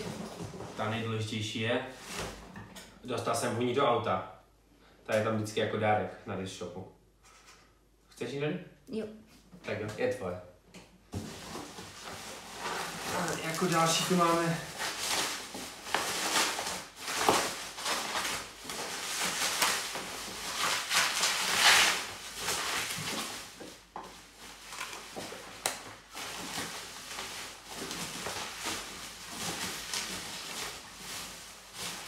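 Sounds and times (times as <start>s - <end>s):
bubble wrap and plastic bag rustling: 0.0s - 2.6s, 11.1s - 32.0s.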